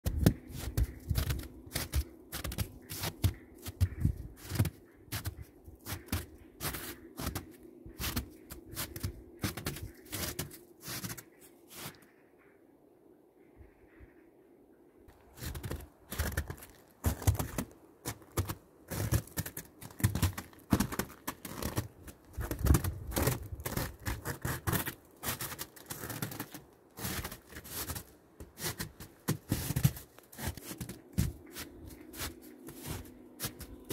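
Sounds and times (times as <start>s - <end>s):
footsteps crunching on snow: 0.1s - 12.0s, 15.3s - 33.9s.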